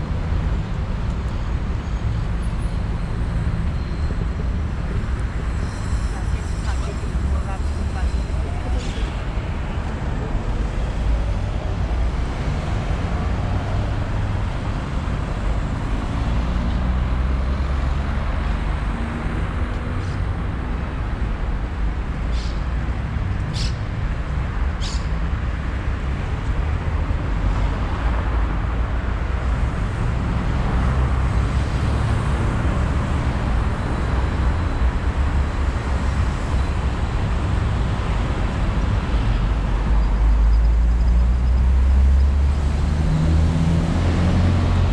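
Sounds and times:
road vehicle rumble: 0:00.0 - 0:44.9.

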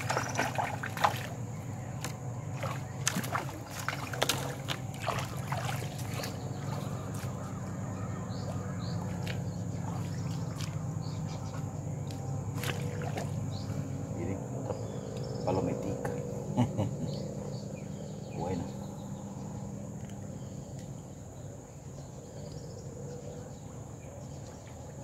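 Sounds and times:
river water splashing: 0:00.0 - 0:15.4.

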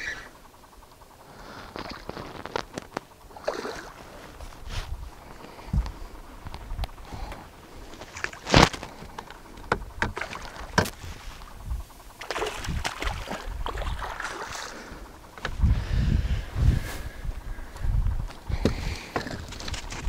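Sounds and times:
water sloshing: 0:03.2 - 0:04.5, 0:07.9 - 0:11.2, 0:12.1 - 0:15.5
fish thrashing and splashing: 0:10.0 - 0:10.9, 0:12.2 - 0:15.0.

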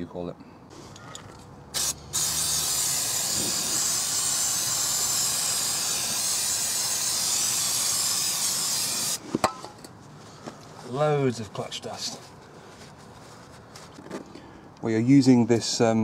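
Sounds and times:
aerosol spray hissing: 0:01.8 - 0:09.2.

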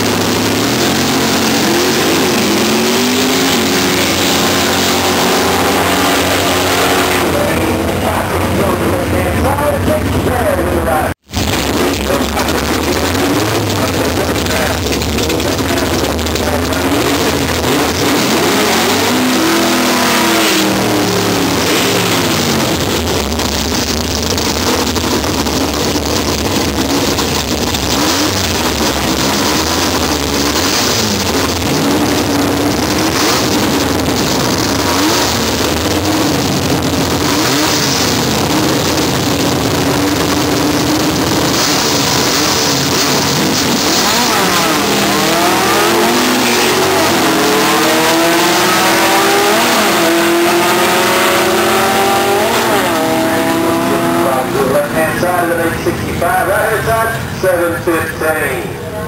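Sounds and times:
cars accelerating at full throttle: 0:00.0 - 0:59.0
drag car engines revving: 0:00.0 - 0:59.0.

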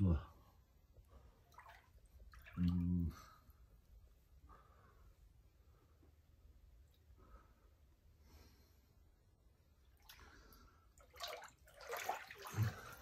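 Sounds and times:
water sloshing and splashing: 0:01.1 - 0:03.3, 0:09.8 - 0:13.0.

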